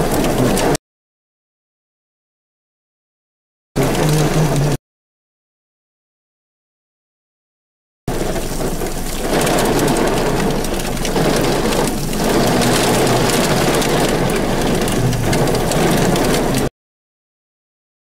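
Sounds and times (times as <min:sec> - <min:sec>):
heavy rain on vehicle roof: 0:00.0 - 0:00.8, 0:03.8 - 0:04.8, 0:08.1 - 0:16.7.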